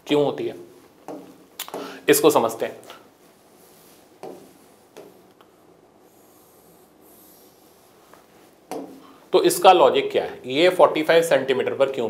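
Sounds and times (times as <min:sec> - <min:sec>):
soft handling sounds: 0:02.6 - 0:09.4
faint rubbing: 0:03.2 - 0:09.3.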